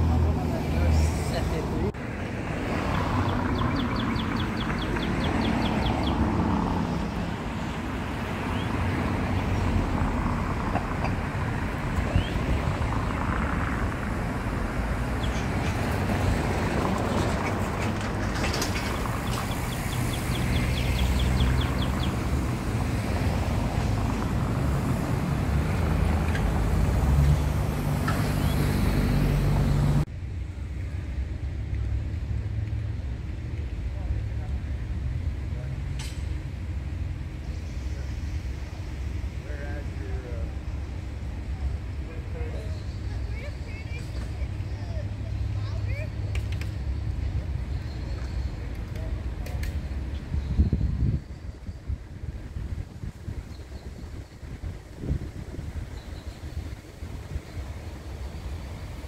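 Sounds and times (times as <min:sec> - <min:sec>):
road traffic: 0:00.0 - 0:59.0
birds chirping: 0:02.6 - 0:09.9, 0:11.9 - 0:13.6, 0:14.3 - 0:23.0, 0:53.2 - 0:58.9.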